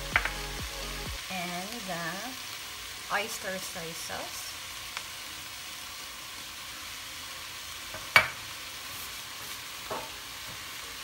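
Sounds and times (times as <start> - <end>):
vegetables sizzling in a pan: 0.0 - 11.0.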